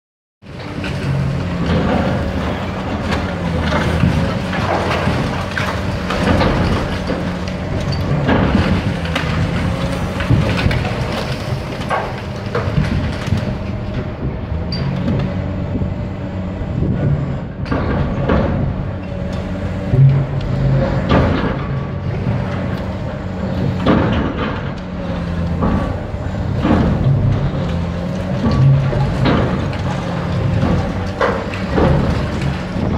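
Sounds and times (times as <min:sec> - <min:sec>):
diesel engine running under load: 0:00.4 - 0:32.9
concrete crashing and crunching: 0:00.6 - 0:14.2, 0:23.6 - 0:32.9
crashes of breaking material: 0:23.6 - 0:32.9.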